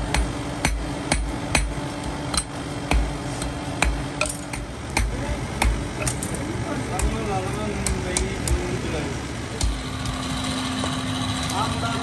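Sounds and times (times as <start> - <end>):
hammer striking iron on anvil: 0.0 - 6.3, 6.9 - 8.6, 9.6 - 10.3.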